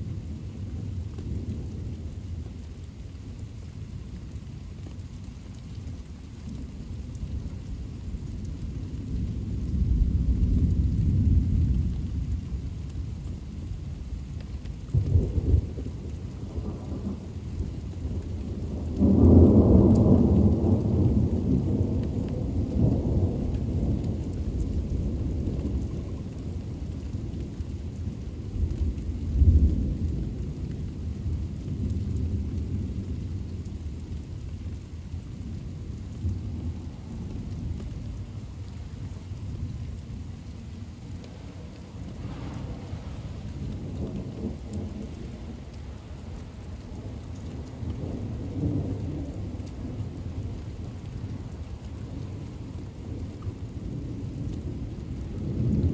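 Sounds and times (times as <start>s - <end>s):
steady rain: 0.0s - 55.9s
thunder: 41.5s - 50.5s, 53.0s - 55.9s.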